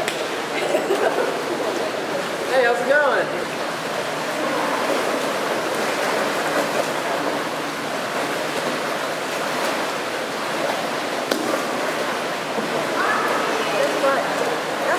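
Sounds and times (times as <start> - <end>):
sharp water slap: 0.0 - 0.4, 11.1 - 13.5
kayak splashing: 0.0 - 14.9
water noise in indoor pool: 0.0 - 14.9.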